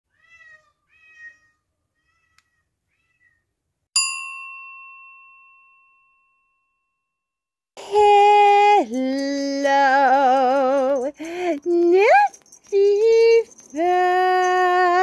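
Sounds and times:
cat meowing: 0:00.1 - 0:03.5
bright bell ding: 0:04.0 - 0:07.1.

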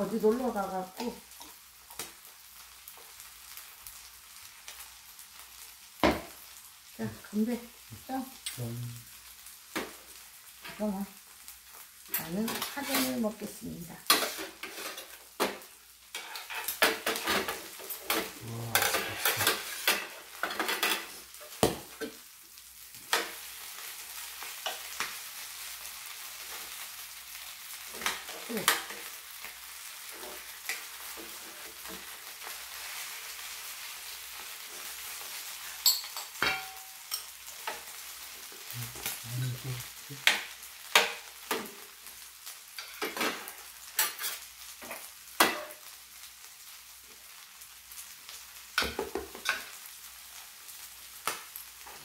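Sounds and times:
food sizzling in oil: 0:00.0 - 0:52.0
utensils clinking and scraping: 0:12.1 - 0:13.2, 0:16.1 - 0:21.2, 0:35.8 - 0:37.3.

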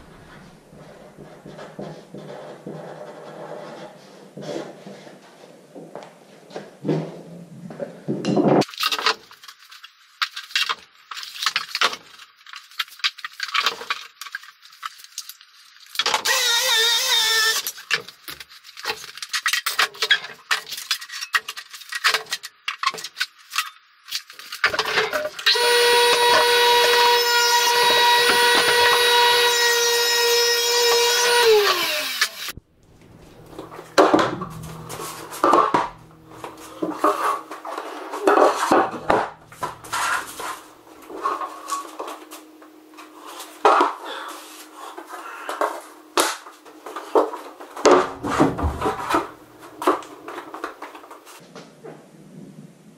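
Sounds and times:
table saw motor whining: 0:16.2 - 0:17.6, 0:25.5 - 0:41.9
plywood clattering and knocking: 0:47.8 - 0:50.0.

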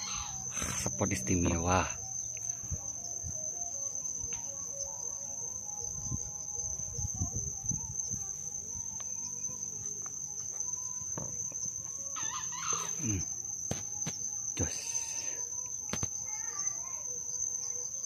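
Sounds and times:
fowl clucking and calling: 0:00.0 - 0:00.5, 0:12.2 - 0:13.0
high-pitched insect drone: 0:00.0 - 0:18.0.

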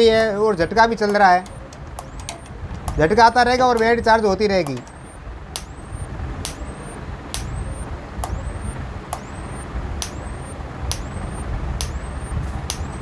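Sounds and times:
electric fence energizer clicks: 0:00.0 - 0:00.4, 0:01.0 - 0:13.0
low steady rumble: 0:00.0 - 0:13.0.

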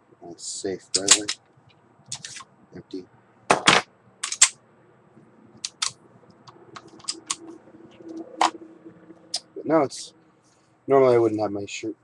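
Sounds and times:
sharp clicks of pistol handling: 0:04.2 - 0:04.6.

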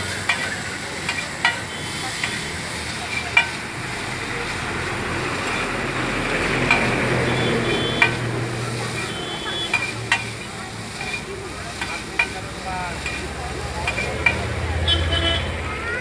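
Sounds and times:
noodles sizzling on griddle: 0:00.0 - 0:16.0
metal spatulas scraping griddle: 0:08.8 - 0:14.4.

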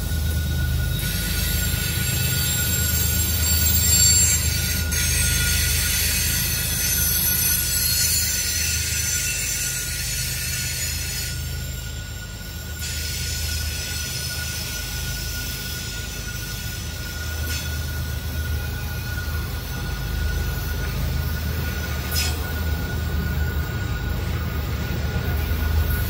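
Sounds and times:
high-pitched wheel squeal: 0:00.0 - 0:26.0
wheels rumbling on rail: 0:00.0 - 0:26.0.

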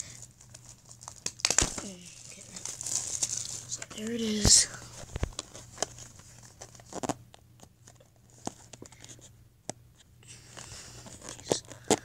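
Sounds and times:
soft rustling of packs: 0:00.0 - 0:09.4.

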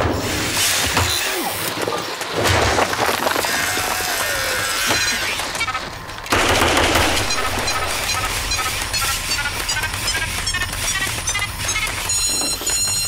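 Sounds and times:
rifle gunfire: 0:06.3 - 0:08.0.

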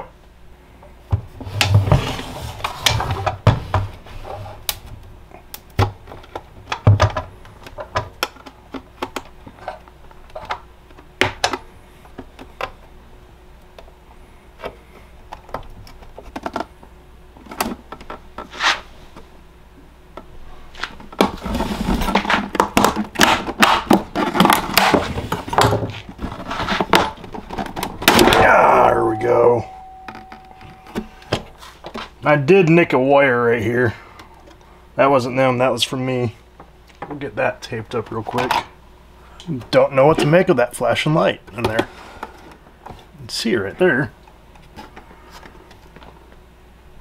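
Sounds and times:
tools clicking and scraping plastic: 0:15.3 - 0:16.7.

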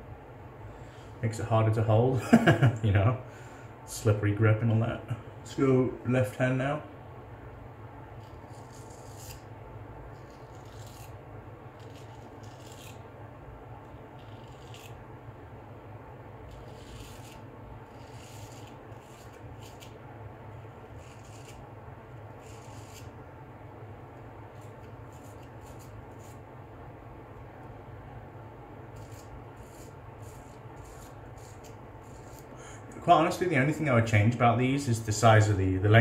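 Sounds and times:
faint low hum: 0:00.0 - 0:36.0
razor scraping stubble: 0:08.2 - 0:09.5, 0:10.1 - 0:13.0, 0:14.1 - 0:15.0, 0:16.4 - 0:20.0, 0:20.8 - 0:21.7, 0:22.3 - 0:23.2, 0:24.5 - 0:26.4, 0:28.9 - 0:32.6.

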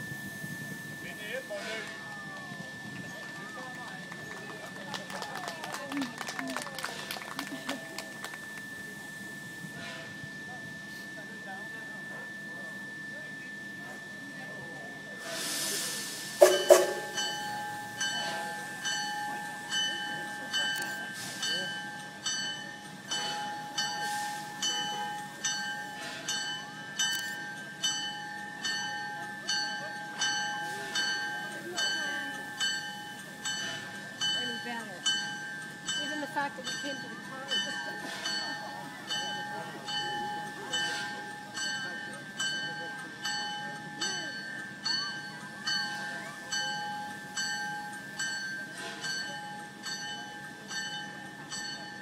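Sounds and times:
steam locomotive bell ringing: 0:00.0 - 0:52.0
steam hiss: 0:15.2 - 0:19.8, 0:23.2 - 0:26.5.

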